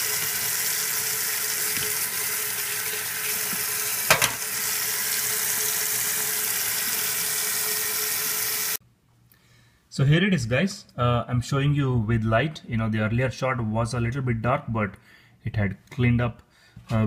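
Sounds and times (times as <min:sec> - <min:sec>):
tap water running into sink: 0:00.0 - 0:08.8.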